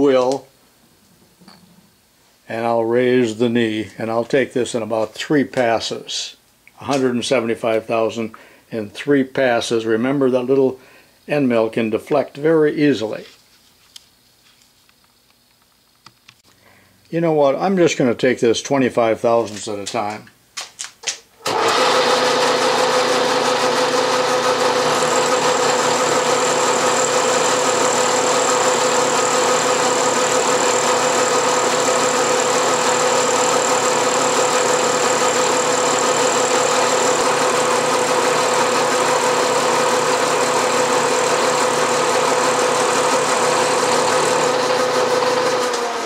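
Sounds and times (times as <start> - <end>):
milling machine hum: 21.5 - 46.0.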